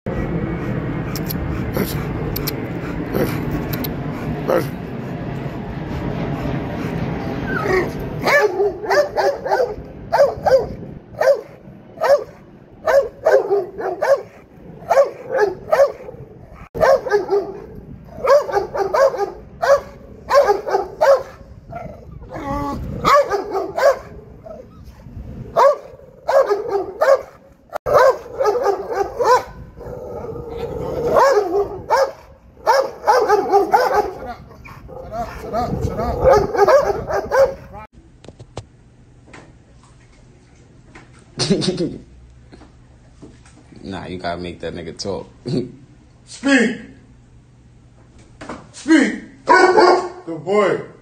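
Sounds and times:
dog barking and yipping: 0:07.4 - 0:24.7, 0:25.5 - 0:37.9, 0:49.5 - 0:50.2.

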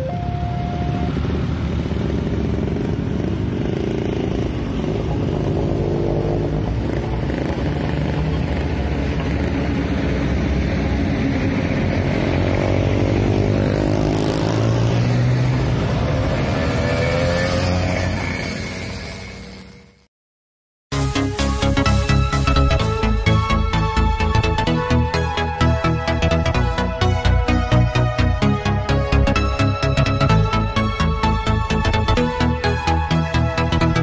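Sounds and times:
two-tone crossing alarm: 0:00.0 - 0:01.4
motorcycles and cars revving: 0:00.0 - 0:20.1
truck engine: 0:00.0 - 0:20.1.

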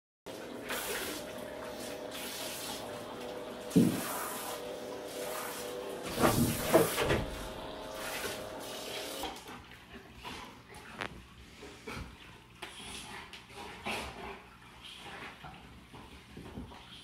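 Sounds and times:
shower sprayer water running: 0:00.3 - 0:09.5
thump: 0:06.2 - 0:07.4.

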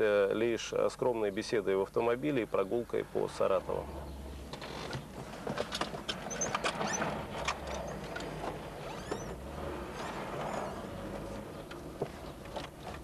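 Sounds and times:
car road and engine noise: 0:02.4 - 0:13.0
high chirps and squeaks: 0:06.2 - 0:08.0, 0:08.8 - 0:09.4.

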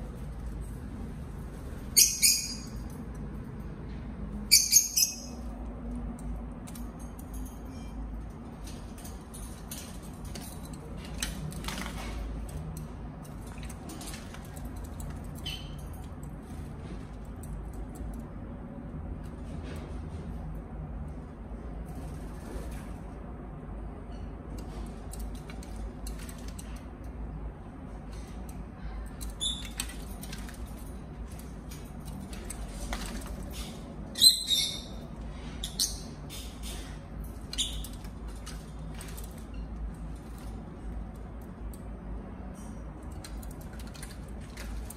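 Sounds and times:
high bird chirps: 0:01.9 - 0:02.8, 0:04.5 - 0:05.4, 0:34.1 - 0:36.2.

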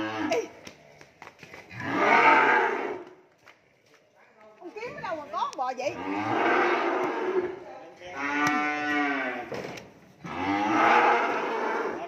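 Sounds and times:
cattle mooing: 0:01.8 - 0:03.0, 0:05.9 - 0:09.5, 0:10.2 - 0:12.0.

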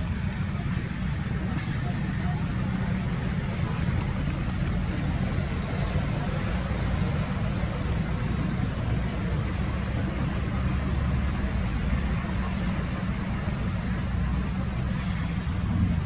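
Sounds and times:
hiss: 0:14.8 - 0:15.8.

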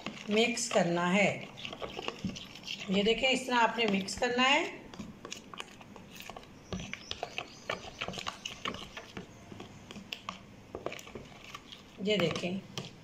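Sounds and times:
hand squelching yogurt marinade: 0:00.0 - 0:13.0.

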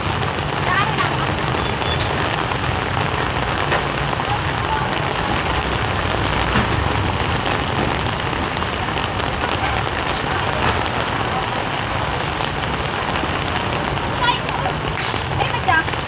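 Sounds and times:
heavy rain falling: 0:00.0 - 0:16.0
raindrops ticking on surfaces: 0:00.0 - 0:16.0.

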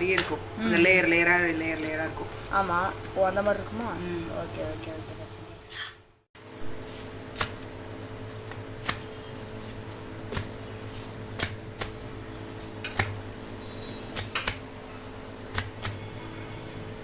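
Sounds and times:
steady hum: 0:00.0 - 0:17.0
palms slapping flatbread: 0:06.9 - 0:14.8, 0:15.4 - 0:16.1.

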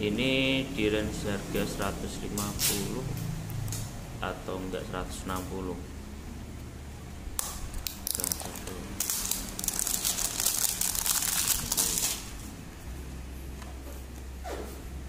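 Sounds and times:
plastic shrink-wrap crinkling: 0:07.8 - 0:12.4.

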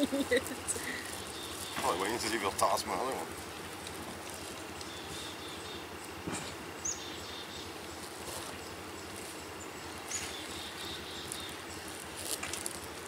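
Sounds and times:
plastic bag crackling: 0:00.0 - 0:04.8, 0:11.0 - 0:13.0.

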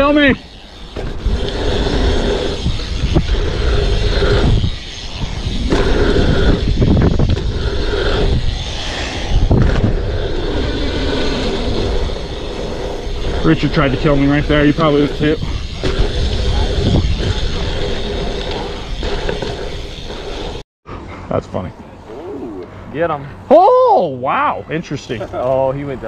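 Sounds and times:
bike tyres rolling on dirt: 0:00.0 - 0:20.6
wind buffeting microphone: 0:00.0 - 0:20.6.

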